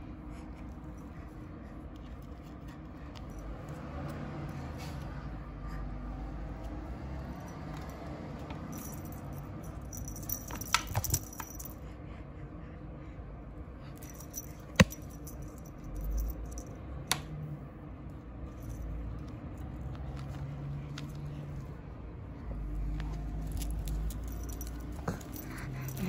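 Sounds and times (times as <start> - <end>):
light jangling rattle: 6.5 - 11.8, 13.9 - 16.9, 18.4 - 21.5, 22.8 - 26.0.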